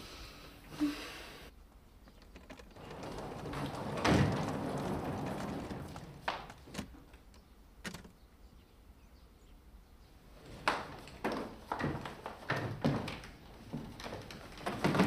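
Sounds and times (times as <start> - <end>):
suitcases knocking on stairs: 2.4 - 7.0, 10.4 - 15.0
footsteps on stairs: 2.8 - 7.3, 10.5 - 15.0.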